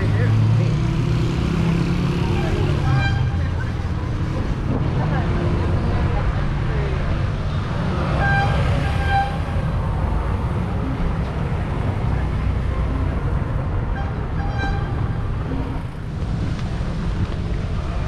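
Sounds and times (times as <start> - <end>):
passing traffic rumble: 0.0 - 18.0
wind on microphone: 13.6 - 18.0.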